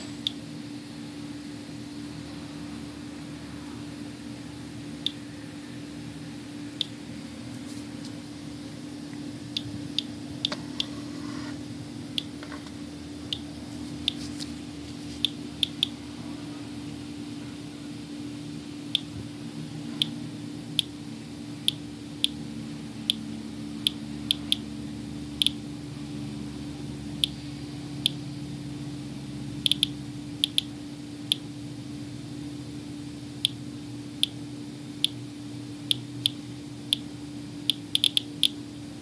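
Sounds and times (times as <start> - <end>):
steady low hum: 0.0 - 39.0
geiger counter clicking: 5.0 - 5.2, 12.1 - 12.7, 15.2 - 16.0, 18.9 - 19.2, 21.6 - 22.4, 23.8 - 24.6, 25.4 - 25.6, 29.6 - 31.5, 35.8 - 38.6.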